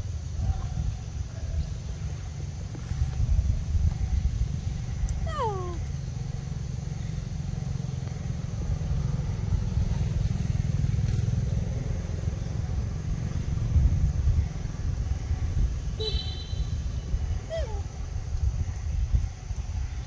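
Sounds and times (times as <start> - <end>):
low rumble: 0.2 - 20.0.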